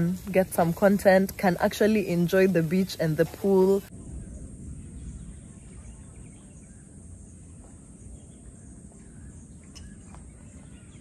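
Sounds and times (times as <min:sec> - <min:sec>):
low rumble: 0:00.0 - 0:09.5
bird chirps: 0:04.0 - 0:11.0.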